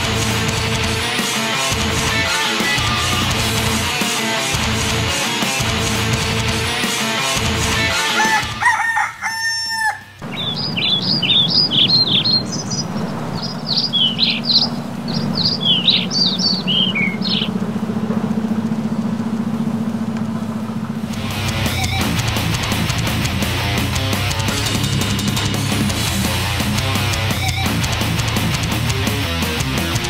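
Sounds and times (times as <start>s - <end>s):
rooster crowing: 7.9s - 10.7s
small birds chirping: 10.2s - 17.8s, 21.5s - 22.4s
steady low hum: 10.2s - 27.0s.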